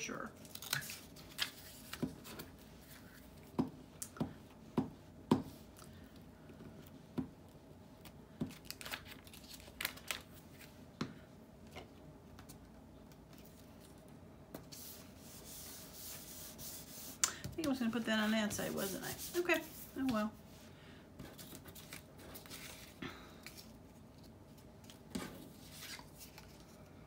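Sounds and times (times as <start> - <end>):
soft rubbing of paper: 14.7 - 23.7.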